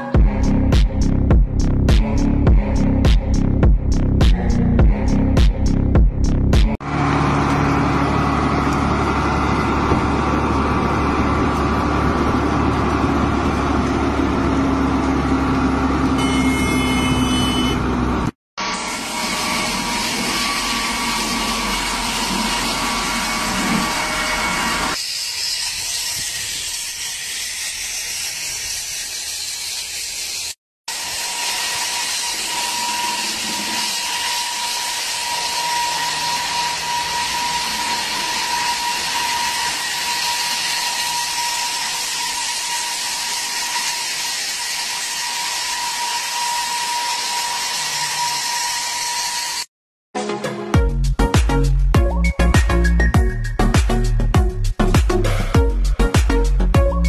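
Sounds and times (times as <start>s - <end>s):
dump truck engine driving past: 6.8s - 16.2s
wire saw cutting concrete hiss: 18.7s - 49.7s.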